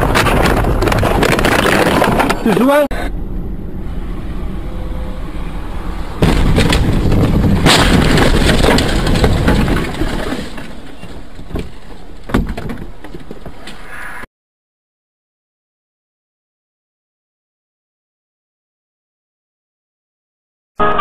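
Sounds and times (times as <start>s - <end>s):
rough crashing noise: 3.2s - 12.6s
vehicle crash bang: 3.9s - 12.6s.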